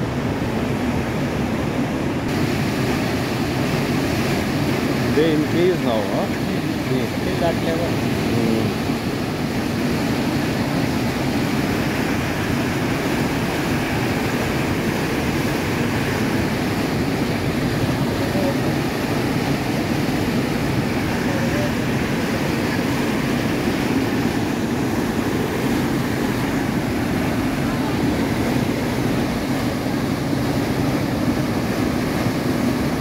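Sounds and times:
water rushing and churning: 0.0s - 33.0s.

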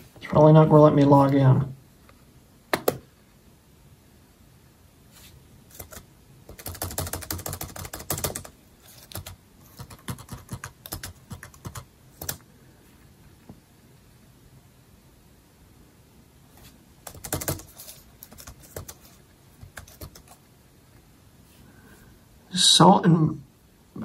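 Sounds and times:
laptop keyboard typing: 5.7s - 12.5s, 17.0s - 20.4s.

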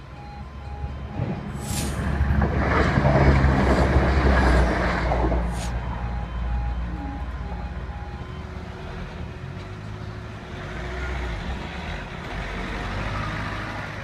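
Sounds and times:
level crossing warning alarm: 0.0s - 2.3s, 5.0s - 9.9s
barriers humming while rising: 0.0s - 11.8s
road vehicles idling: 0.0s - 14.0s
traffic moving off: 0.0s - 14.0s.

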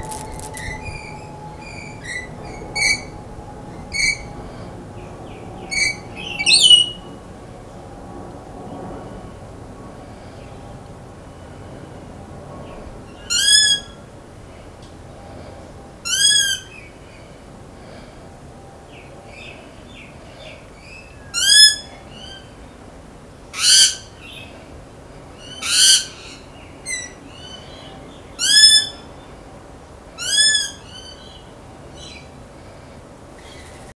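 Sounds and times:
lorikeet screeches: 0.0s - 4.6s, 5.6s - 7.1s, 13.2s - 14.0s, 16.1s - 16.9s, 20.8s - 22.5s, 23.6s - 24.1s, 25.4s - 27.7s, 28.4s - 29.1s, 30.2s - 31.4s
lorikeet calling: 0.0s - 7.2s, 13.1s - 14.0s, 16.0s - 16.9s, 20.8s - 22.5s, 23.6s - 24.5s, 25.4s - 29.1s, 30.2s - 31.4s.

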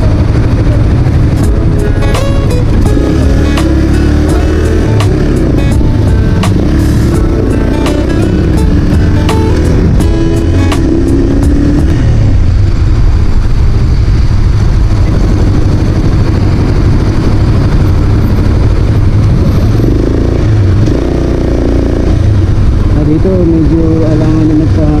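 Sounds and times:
motorcycle engine running: 0.0s - 25.0s
wind rush over microphone: 12.0s - 20.6s.

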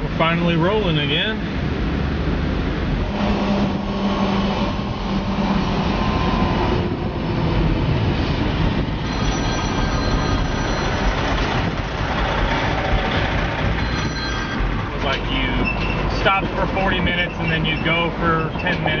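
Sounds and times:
car road and wind noise: 0.0s - 19.0s.

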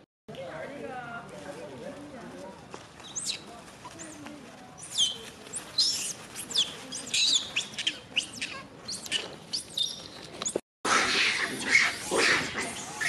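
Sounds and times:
shrill chirping and squealing calls: 3.0s - 3.5s, 4.8s - 13.0s.

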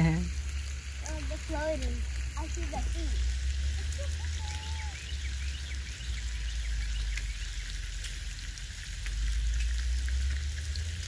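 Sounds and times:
faint crackling hiss: 0.0s - 11.0s.

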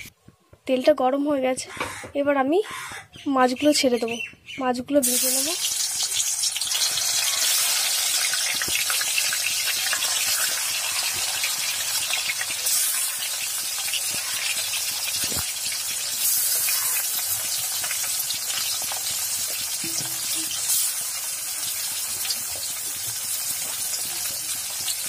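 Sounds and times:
fish sizzling in hot oil: 5.0s - 25.0s.

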